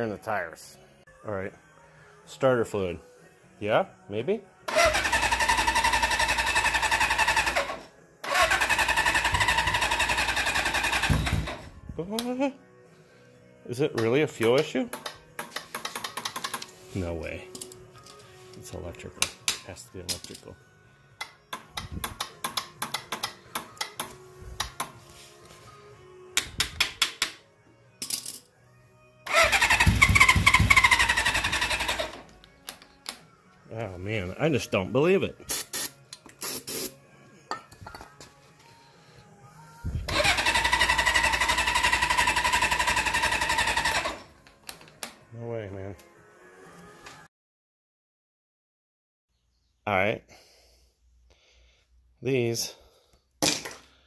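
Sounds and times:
engine cranking by starter: 4.7 - 11.7, 29.3 - 32.2, 40.1 - 44.3.

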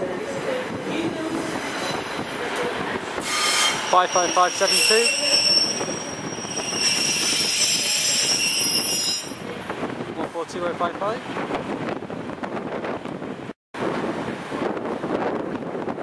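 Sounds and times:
passing train rumble: 0.0 - 16.0
train wheels squealing: 3.2 - 9.4.

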